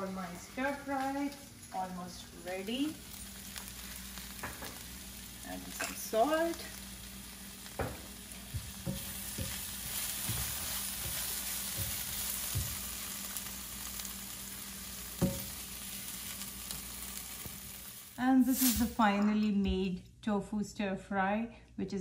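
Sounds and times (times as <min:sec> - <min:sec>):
vegetables sizzling in skillet: 0:00.0 - 0:19.0
spatula tapping pan: 0:07.8 - 0:12.9, 0:15.2 - 0:15.6.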